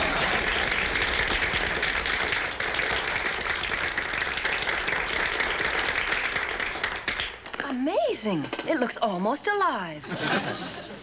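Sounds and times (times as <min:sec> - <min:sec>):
audience applauding: 0:00.0 - 0:07.7.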